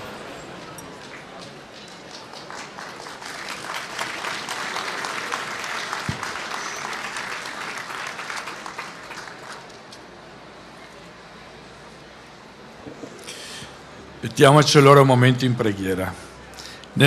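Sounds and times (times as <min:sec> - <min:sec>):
crowd clapping: 0:00.5 - 0:09.9.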